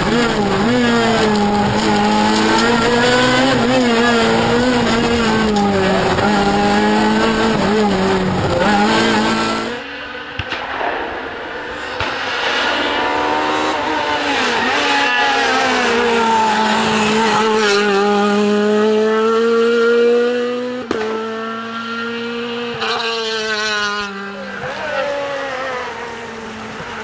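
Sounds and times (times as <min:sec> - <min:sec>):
rally car engine passing: 0:00.0 - 0:10.4, 0:11.1 - 0:27.0
sharp crack: 0:10.3 - 0:13.0.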